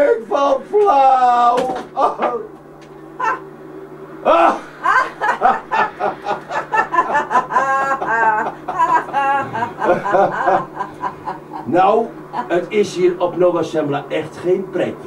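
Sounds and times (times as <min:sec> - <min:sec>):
steady low hum: 0:00.0 - 0:15.0
person laughing: 0:00.9 - 0:02.6, 0:03.2 - 0:03.4, 0:04.2 - 0:13.5.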